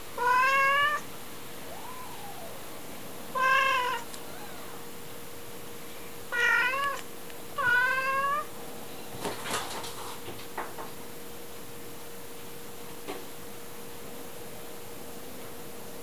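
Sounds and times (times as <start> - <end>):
cat meowing: 0.2 - 2.6, 3.3 - 4.9, 6.3 - 7.0, 7.6 - 8.5
faint clicks: 6.8 - 7.4.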